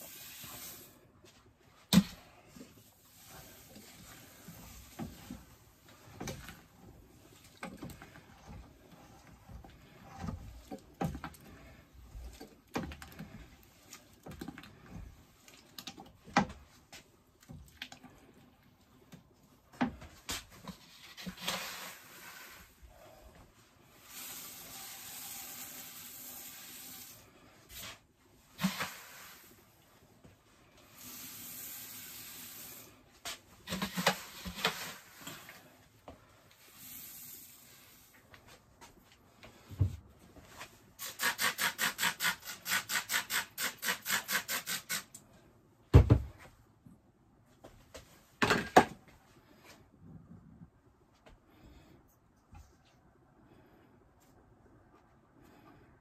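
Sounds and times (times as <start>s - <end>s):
grain pouring rustle: 0.0s - 1.1s, 21.3s - 22.8s, 23.9s - 28.0s, 30.8s - 33.1s
scoop scraping grain: 0.0s - 1.1s, 20.8s - 22.8s, 23.9s - 29.6s
thump: 45.9s - 46.4s.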